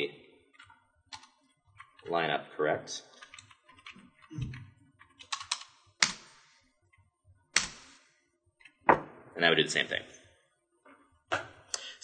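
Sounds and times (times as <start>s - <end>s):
computer keyboard typing: 0.5s - 2.0s, 3.2s - 6.4s.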